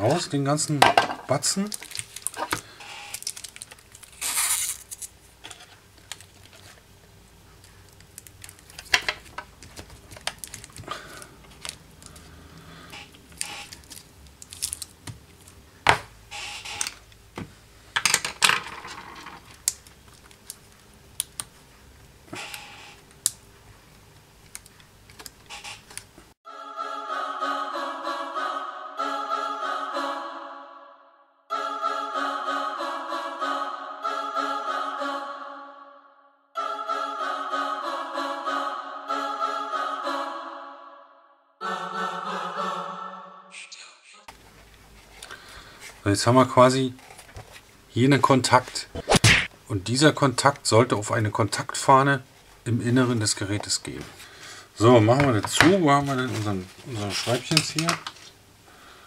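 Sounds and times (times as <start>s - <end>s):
background music: 26.5s - 43.8s.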